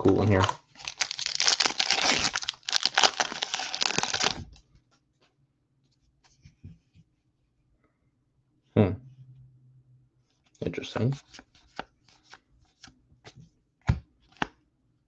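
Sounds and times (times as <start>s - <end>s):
cards rustling: 0.3s - 4.6s
foil wrapper crinkling: 0.7s - 4.6s.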